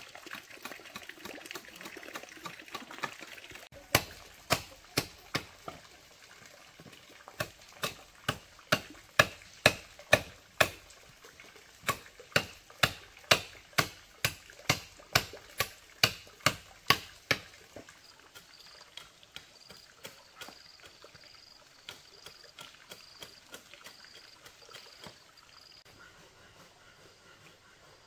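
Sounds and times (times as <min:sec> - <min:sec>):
hand tool striking: 0:07.4 - 0:10.8, 0:11.8 - 0:17.5.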